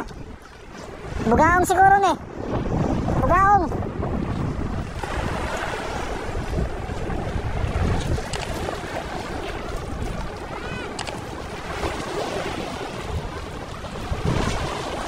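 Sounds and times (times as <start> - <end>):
seawater sloshing and lapping: 0.0 - 15.0
wind buffeting microphone: 0.0 - 15.0
faint cry: 10.5 - 11.0.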